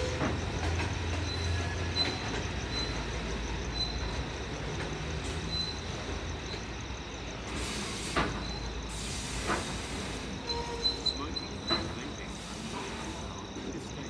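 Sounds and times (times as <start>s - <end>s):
train rumbling past: 0.0s - 14.0s.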